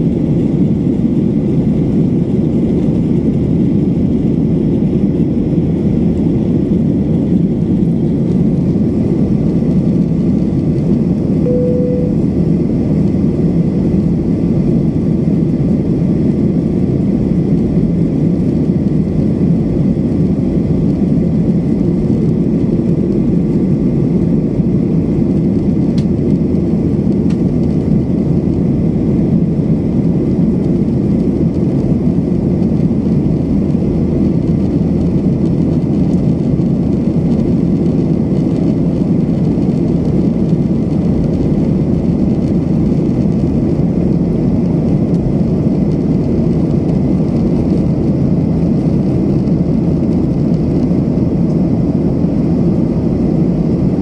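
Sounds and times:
airliner cabin roar: 0.0s - 54.0s
short single tone: 11.4s - 12.4s.

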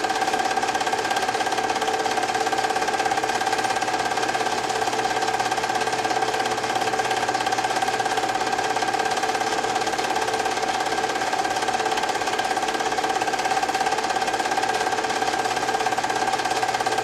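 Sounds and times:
film projector whirring and clattering: 0.0s - 17.0s.

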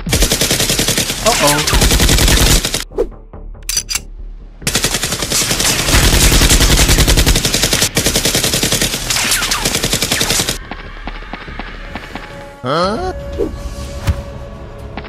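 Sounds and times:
machine-gun fire: 0.0s - 2.8s, 4.7s - 10.8s.

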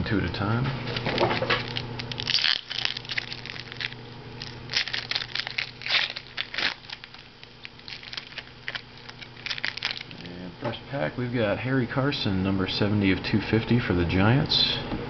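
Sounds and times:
plastic packaging crinkling and tearing: 0.9s - 10.4s.

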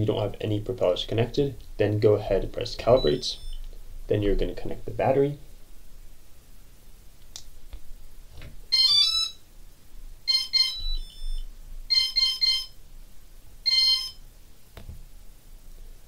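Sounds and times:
electronic beeps and tones: 3.0s - 3.6s, 10.3s - 12.8s.

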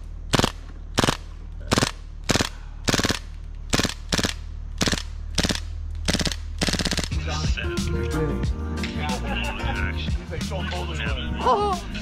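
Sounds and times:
steady low hum: 0.0s - 12.0s
airsoft rifle firing bursts: 0.3s - 7.2s.

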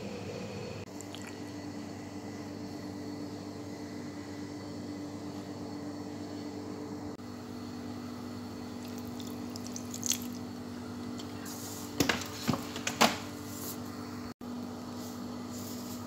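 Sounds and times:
steady low hum: 0.0s - 16.0s
wet splashes and squelches: 8.8s - 10.5s.

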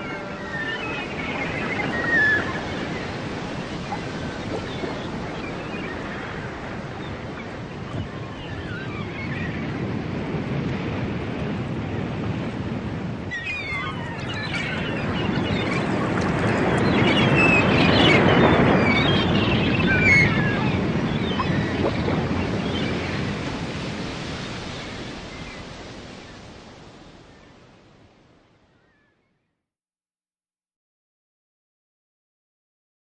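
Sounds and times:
waves breaking: 0.0s - 28.4s.

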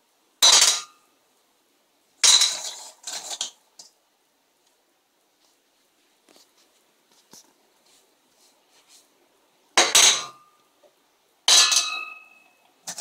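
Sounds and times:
stones clanking into steel pan: 0.4s - 1.0s, 2.2s - 3.9s, 9.8s - 10.5s, 11.5s - 13.0s.

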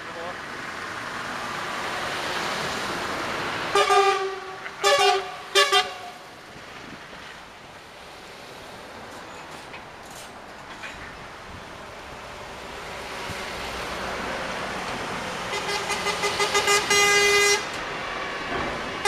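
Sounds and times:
heavy trucks driving past: 0.0s - 19.0s
truck air horns: 3.7s - 6.3s, 15.5s - 17.8s.

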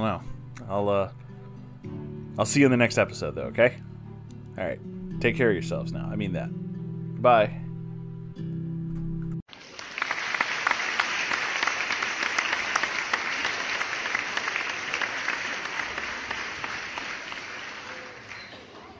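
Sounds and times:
crowd applauding: 9.5s - 18.9s.

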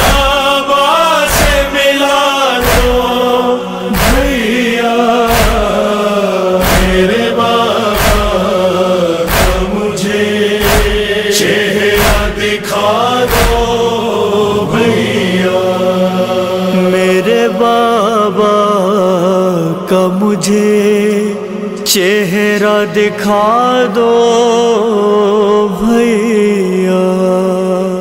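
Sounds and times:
heavy rhythmic thuds: 0.0s - 2.0s, 2.6s - 17.6s
person chanting elegy: 0.0s - 21.0s.

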